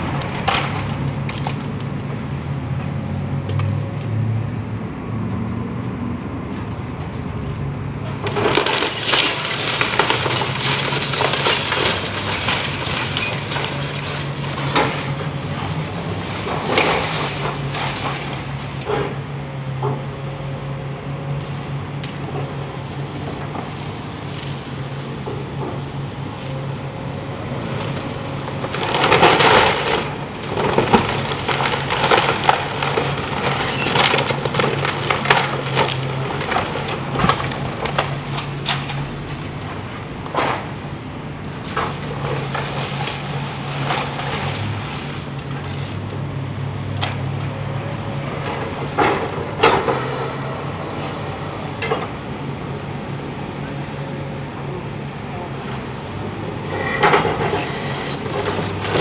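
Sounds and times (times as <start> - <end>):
debris crashing: 0.0 - 2.1, 8.1 - 19.3, 27.5 - 40.9, 41.5 - 45.8, 55.6 - 59.0
wood cracking and splintering: 0.0 - 2.3, 8.1 - 19.2, 27.4 - 40.7, 41.5 - 45.9, 58.2 - 59.0
excavator engine drone: 0.0 - 59.0.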